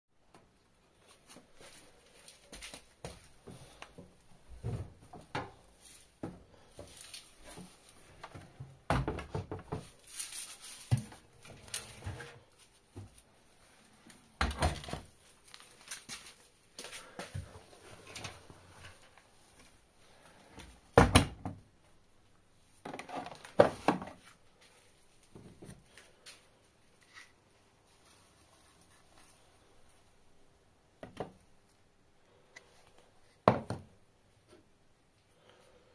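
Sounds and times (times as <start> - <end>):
soft rustling: 0.9 - 5.0, 9.8 - 14.3, 24.1 - 30.4.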